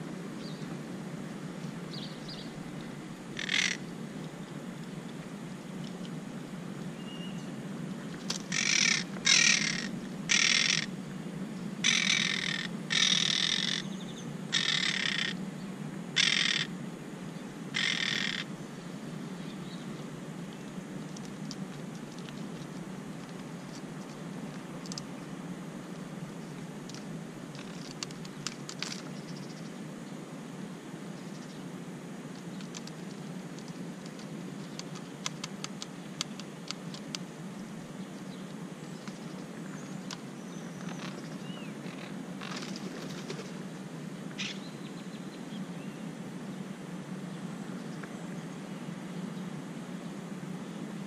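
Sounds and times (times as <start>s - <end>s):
parakeets squawking: 3.4s - 3.8s, 8.5s - 10.9s, 11.8s - 13.9s, 14.5s - 15.4s, 16.2s - 16.7s, 17.8s - 18.4s.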